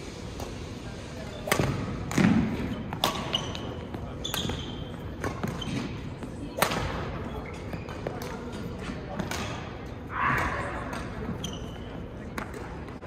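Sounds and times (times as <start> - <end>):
racket striking shuttlecock: 1.5 - 3.6.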